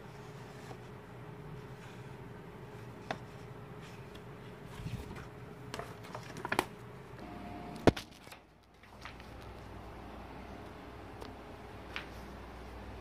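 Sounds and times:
paper rustling: 0:01.6 - 0:06.8, 0:07.9 - 0:09.7.

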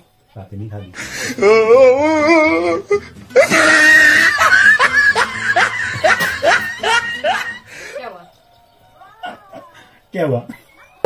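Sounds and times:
people laughing loudly: 0:01.0 - 0:08.1
wavering voiced cry: 0:01.0 - 0:08.2.

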